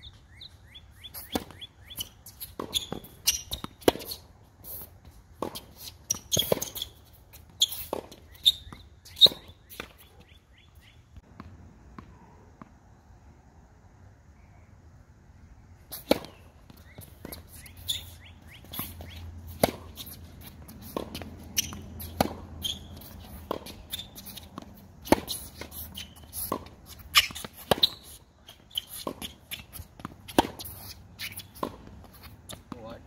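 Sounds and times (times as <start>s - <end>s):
tennis ball bouncing on court: 1.0s - 4.2s, 5.4s - 10.4s, 11.2s - 12.7s, 15.9s - 33.0s
racket hitting tennis ball: 1.1s - 10.3s, 15.9s - 32.9s.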